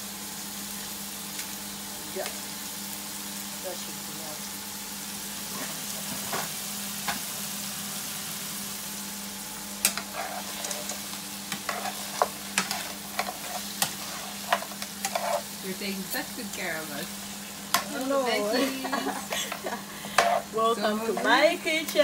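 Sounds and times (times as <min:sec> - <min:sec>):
vegetables sizzling in frying pan: 0:00.0 - 0:22.0
spoon scraping pan: 0:09.8 - 0:16.6, 0:19.0 - 0:21.4.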